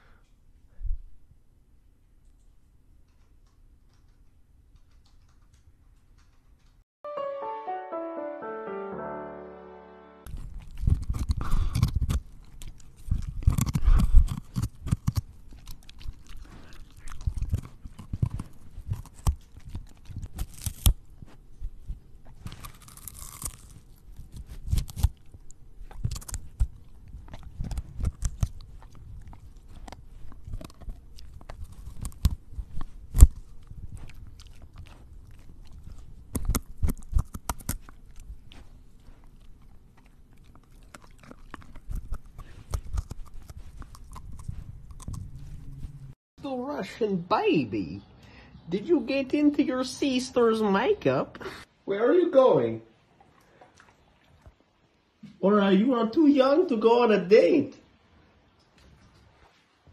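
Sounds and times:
dog crunching raw vegetables: 10.3s - 46.0s.

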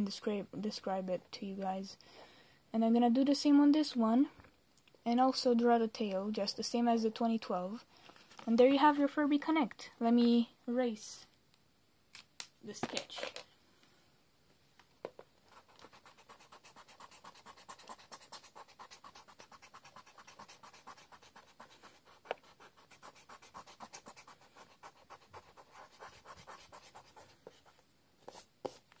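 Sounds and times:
eraser scrubbing on paper: 15.5s - 27.7s.

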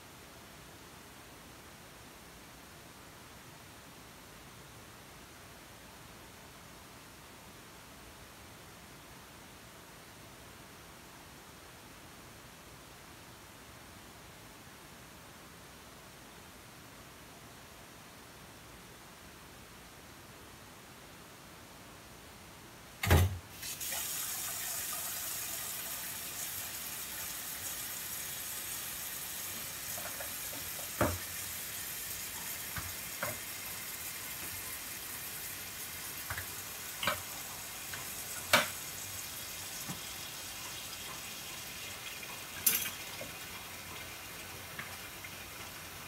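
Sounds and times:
tap water running into sink: 23.0s - 46.0s.

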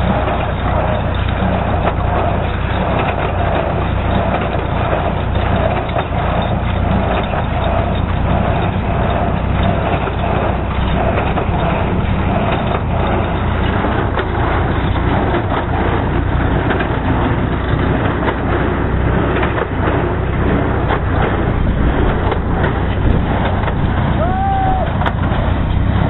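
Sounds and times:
hay baler plunger running: 0.0s - 26.0s
tractor engine: 0.0s - 26.0s.

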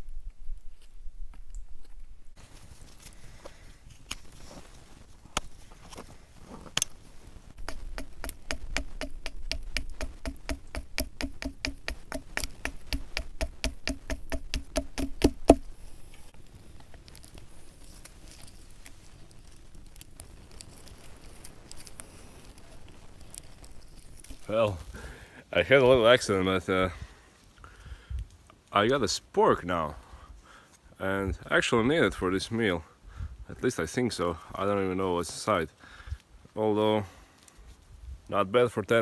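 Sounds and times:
knife chopping into wood: 7.6s - 15.6s.

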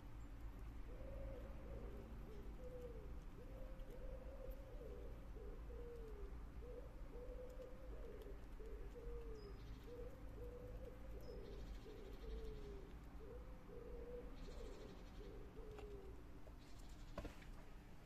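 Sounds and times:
pigeon cooing: 0.9s - 16.2s
squirrel gnawing crackle: 7.4s - 9.3s.

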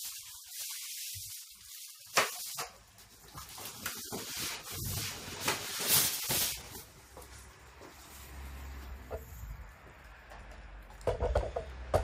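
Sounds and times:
cardboard scraping and rustling: 3.2s - 7.0s.

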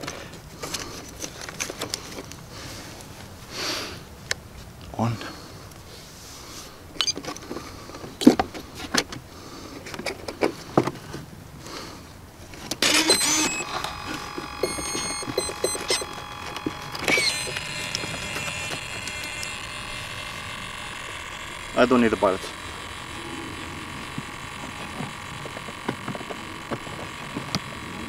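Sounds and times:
steady electric whine: 12.7s - 28.0s
short electronic beeps: 12.8s - 16.2s.

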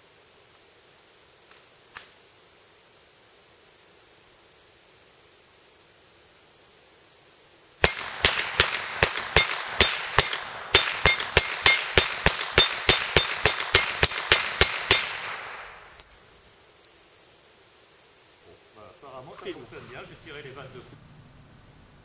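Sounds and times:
rifle shots: 7.8s - 16.1s
sharp metallic crack: 7.8s - 16.3s.

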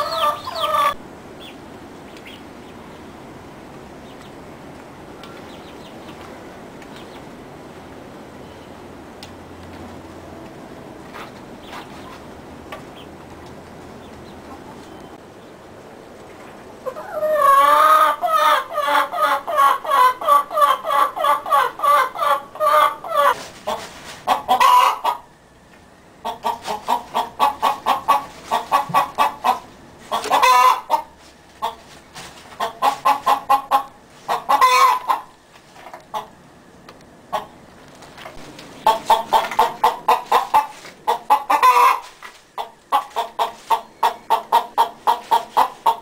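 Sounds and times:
hen cackling: 0.0s - 1.6s, 16.8s - 25.3s, 26.2s - 31.8s, 32.6s - 35.3s, 38.8s - 46.0s.

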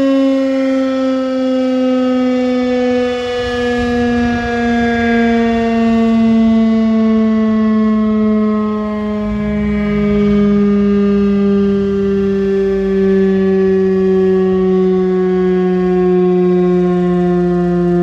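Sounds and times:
siren tone sliding down in pitch: 0.0s - 18.0s.

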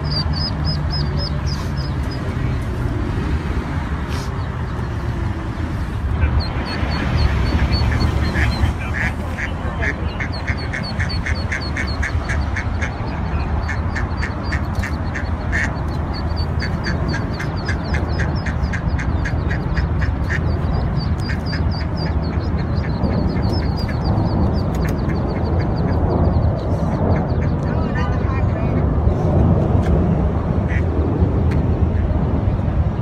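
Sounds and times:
ducklings peeping: 0.0s - 2.4s, 4.2s - 28.0s
steady low rumble: 0.0s - 33.0s
duck quacking: 6.2s - 26.0s.

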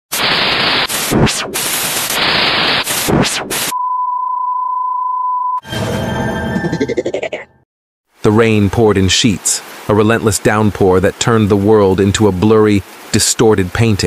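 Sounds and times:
harsh distorted glitch: 0.1s - 3.7s
static hiss: 0.1s - 3.7s, 8.2s - 14.0s
test-tone beep: 3.7s - 6.9s.

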